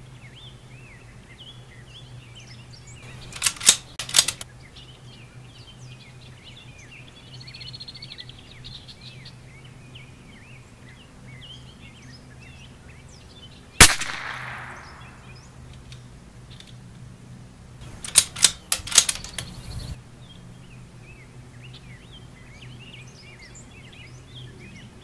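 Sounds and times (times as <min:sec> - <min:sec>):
birds chirping: 0:00.0 - 0:25.0
rifle shot with echo: 0:13.8 - 0:15.4.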